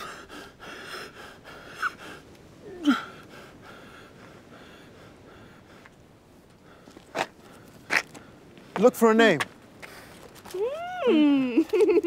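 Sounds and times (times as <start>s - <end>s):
man wheezing and gasping: 0.0s - 3.8s
man moaning: 2.6s - 3.2s.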